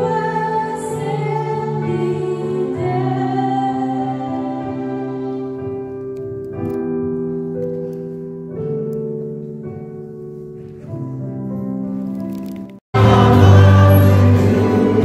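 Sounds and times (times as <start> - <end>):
keyboard playing slow chords: 13.0 - 15.0.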